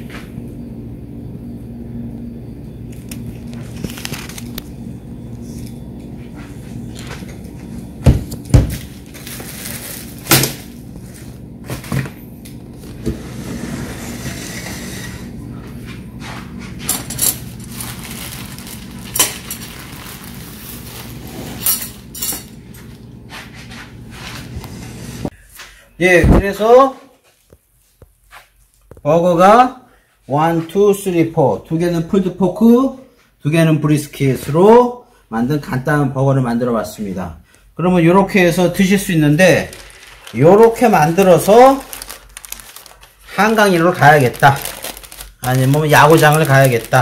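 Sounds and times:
steady low hum: 0.0s - 26.5s.

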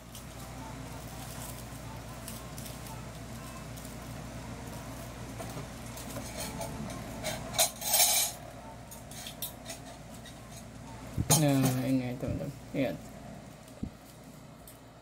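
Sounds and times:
steady low hum: 0.0s - 15.0s
metal kitchenware clinking: 6.0s - 12.0s.

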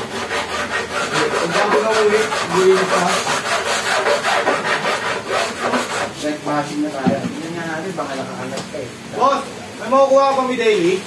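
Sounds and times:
rough scraping in rapid strokes: 0.0s - 6.3s.

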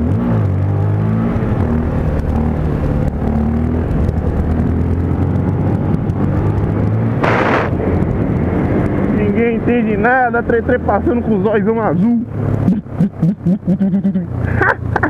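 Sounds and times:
hissing noise burst: 7.2s - 7.8s.

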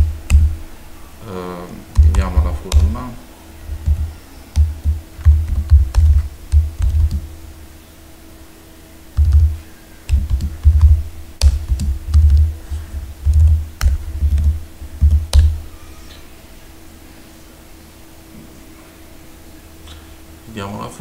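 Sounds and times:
typing on computer keyboard: 9.2s - 12.5s.

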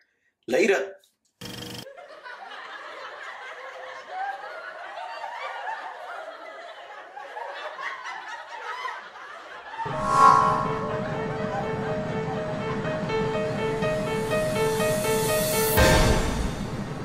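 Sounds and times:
voices laughing together: 1.9s - 9.8s.

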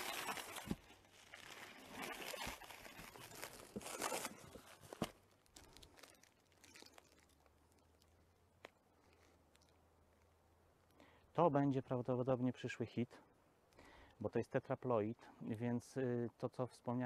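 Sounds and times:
plastic wrapping rustling: 0.0s - 8.2s.

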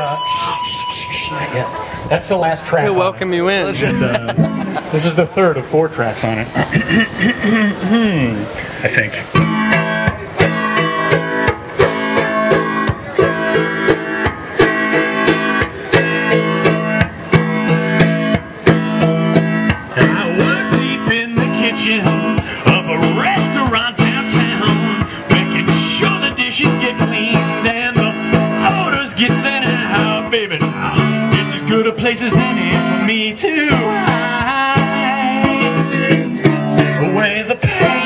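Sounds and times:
wavering higher melody line: 0.0s - 4.9s
banjo strumming: 0.0s - 5.8s, 7.5s - 38.0s
live country band: 9.2s - 38.0s.

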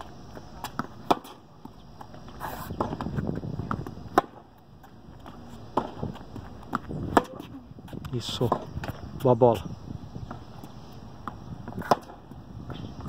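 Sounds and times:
tennis ball hits and bounces: 0.6s - 1.8s, 2.4s - 4.5s, 5.2s - 7.6s, 8.4s - 9.0s, 11.2s - 12.3s.

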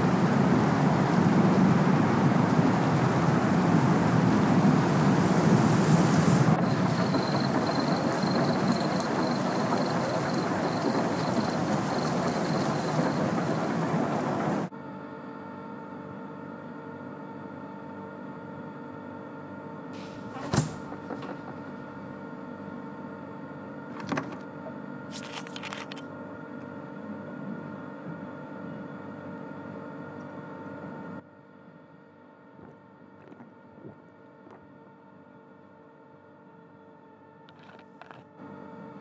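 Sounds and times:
heavy rain: 0.0s - 14.7s
steady hum: 0.0s - 14.7s.

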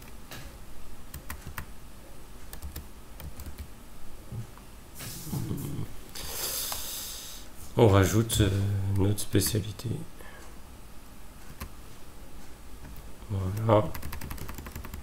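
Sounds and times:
breathy hiss: 5.0s - 7.6s.

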